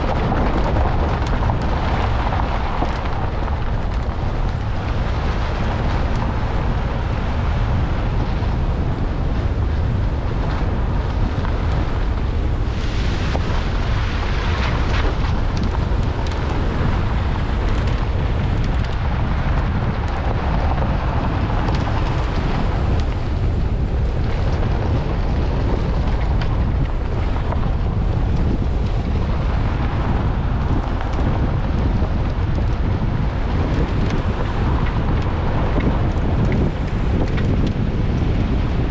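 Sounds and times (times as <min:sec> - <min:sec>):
gravel crackles: 0:00.0 - 0:38.9
wind rumble on microphone: 0:00.0 - 0:38.9.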